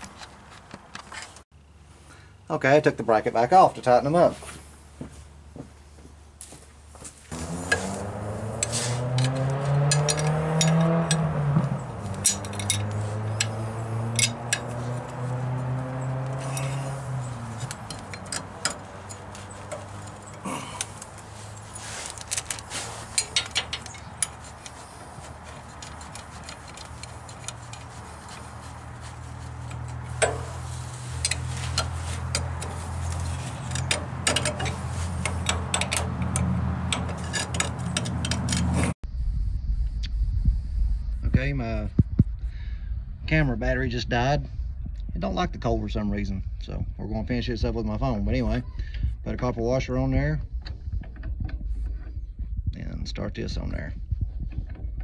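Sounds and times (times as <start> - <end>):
wrench clinking on metal fittings: 8.6 - 14.8, 16.3 - 38.9.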